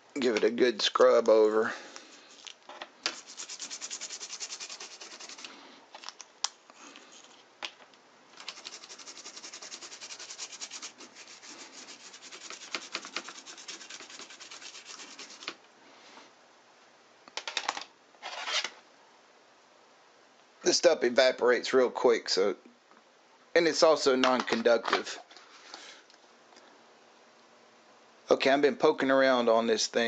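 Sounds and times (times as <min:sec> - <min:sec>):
brush scrubbing circuit board: 0:03.1 - 0:05.5, 0:08.4 - 0:15.6.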